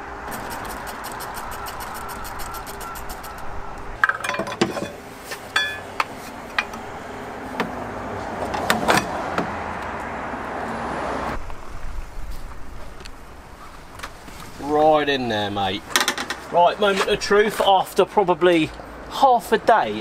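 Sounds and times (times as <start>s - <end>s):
tools clinking on metal: 4.0s - 5.9s.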